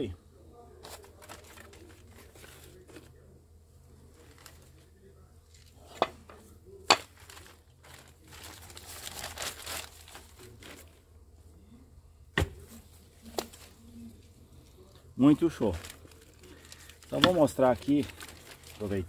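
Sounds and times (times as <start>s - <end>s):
rustling and scraping: 0.8s - 3.4s.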